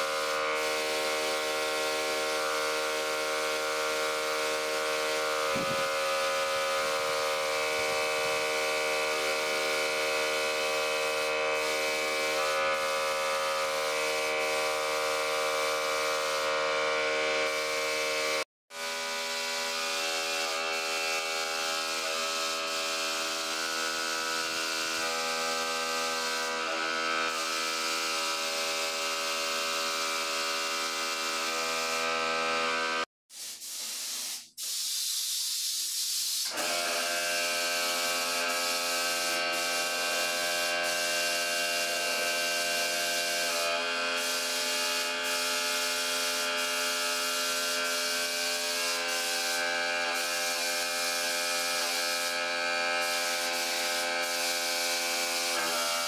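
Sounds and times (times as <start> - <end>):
paint spray gun hissing: 0.0 - 16.6, 33.3 - 56.0
air compressor humming: 0.0 - 17.7, 36.4 - 41.4, 47.8 - 51.2, 51.8 - 55.7.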